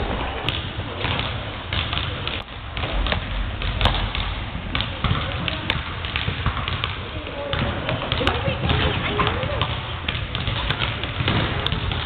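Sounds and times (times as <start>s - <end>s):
basketballs bouncing on wooden floor: 0.0s - 12.0s.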